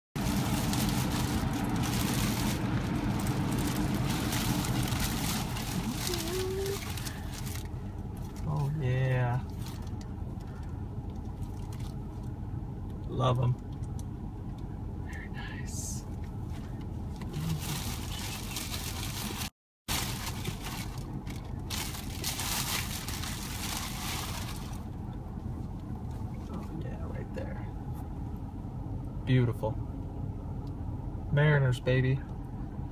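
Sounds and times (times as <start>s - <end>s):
plastic bag crinkling: 0.2s - 8.5s, 9.4s - 10.7s, 17.3s - 24.9s
car engine idling: 0.2s - 32.9s.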